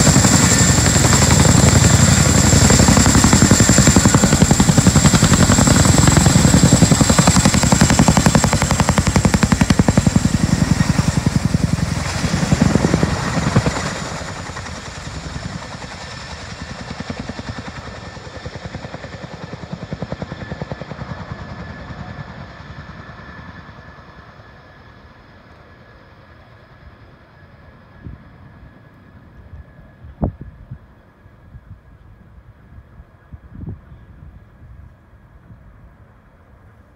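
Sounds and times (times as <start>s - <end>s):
helicopter rotor chop: 0.0s - 23.3s
helicopter high whine: 0.0s - 36.5s.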